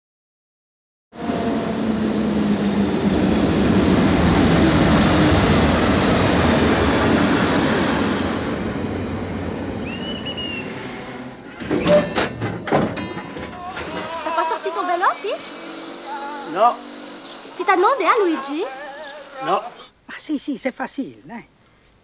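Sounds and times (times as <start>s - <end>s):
train rumbling and rattling past: 1.2s - 19.6s
sharp knocks: 11.7s - 14.1s.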